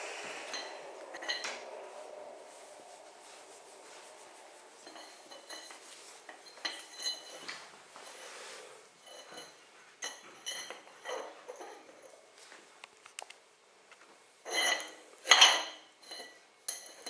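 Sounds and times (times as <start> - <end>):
metal object scraping on tiles: 0.0 - 11.9
metal object clinking on tiles: 0.5 - 1.6, 4.8 - 7.6, 9.0 - 11.8, 14.5 - 17.0.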